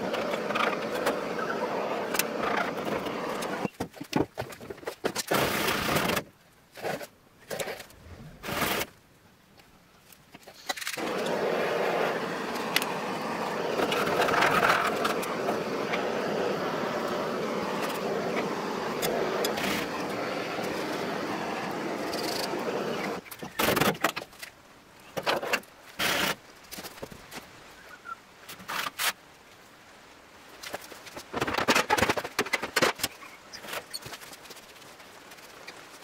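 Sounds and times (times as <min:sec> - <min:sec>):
scraper scraping metal: 0:06.8 - 0:08.9.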